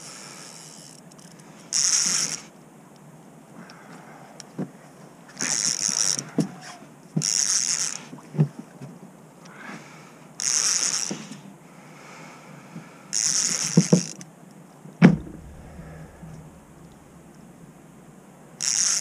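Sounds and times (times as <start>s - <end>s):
fishing reel cranking: 0.4s - 2.4s, 5.4s - 6.2s, 7.3s - 8.1s
loud thump: 15.0s - 18.2s.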